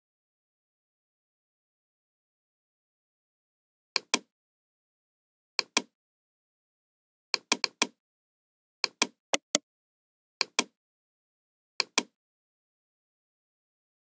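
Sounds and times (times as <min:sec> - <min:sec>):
computer mouse button clicking: 0:09.0 - 0:09.6.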